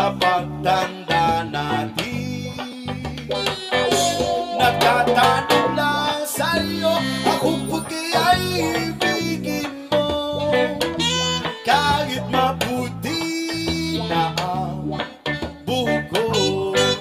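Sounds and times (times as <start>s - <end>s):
plucked guitar song: 0.0s - 17.0s
stepping bass line: 0.0s - 17.0s.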